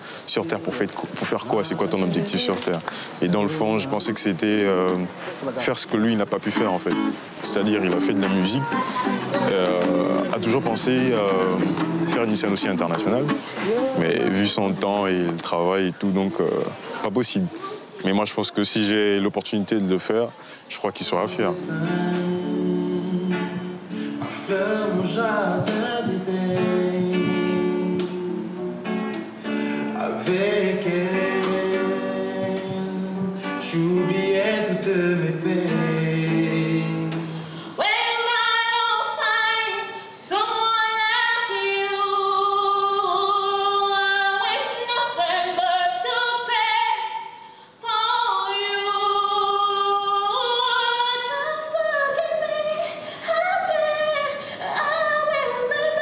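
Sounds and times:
guitar music with singing: 0.0 - 15.4, 21.1 - 47.1
woman singing unaccompanied: 0.4 - 4.4, 6.9 - 14.4, 21.1 - 29.2, 29.8 - 56.0.

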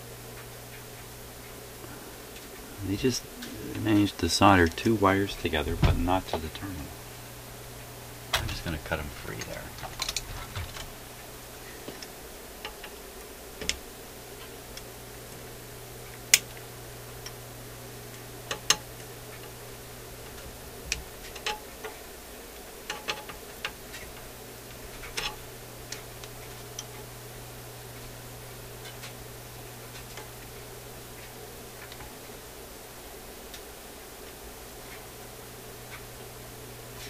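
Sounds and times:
steady low hum: 0.0 - 37.0.

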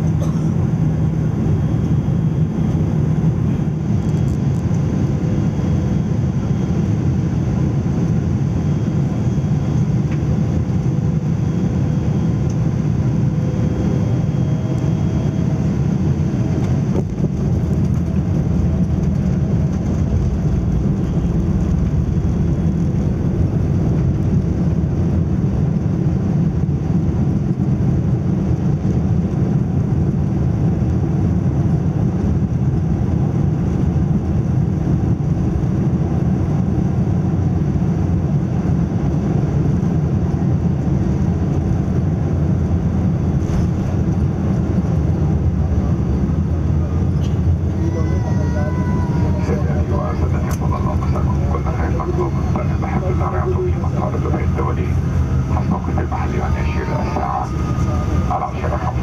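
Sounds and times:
airplane cabin engine noise: 0.0 - 59.0.

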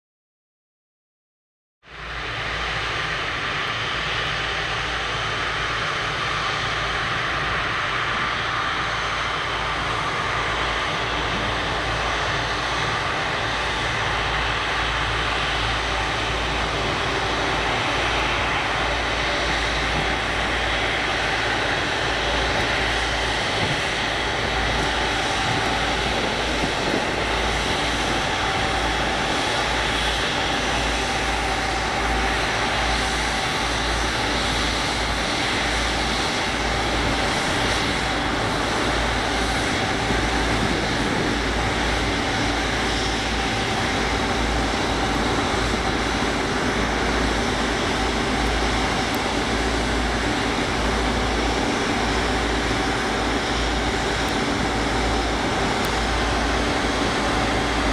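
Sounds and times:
jet engines whining at low power: 1.8 - 57.9.

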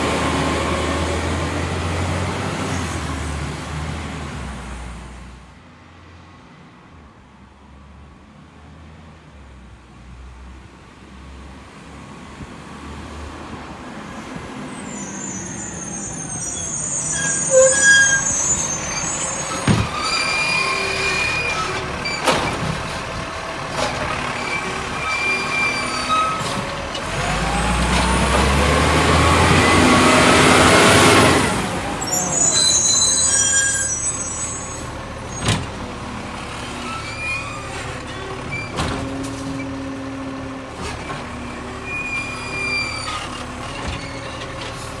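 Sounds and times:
garbage truck engine revving: 18.1 - 32.0.

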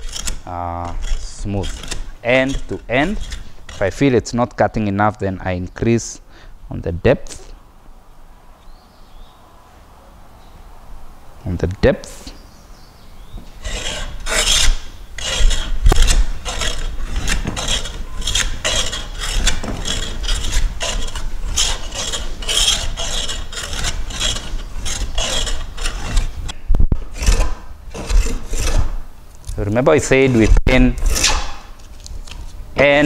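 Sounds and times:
hand plane rasping on wood: 0.0 - 4.0, 13.4 - 26.5, 27.1 - 29.0.

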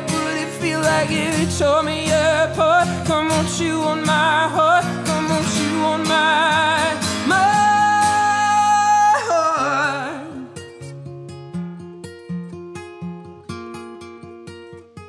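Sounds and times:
man singing: 0.0 - 10.7
strummed acoustic guitar: 0.0 - 15.0.

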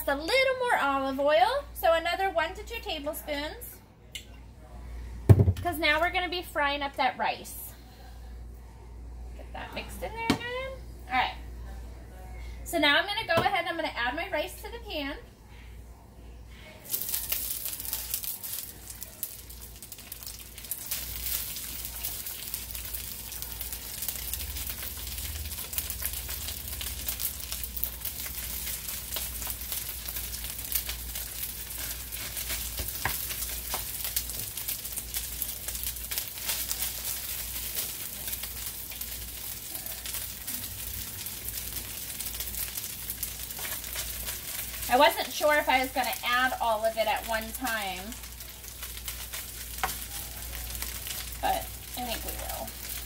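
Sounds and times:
rice sizzling in hot oil: 16.8 - 53.0.

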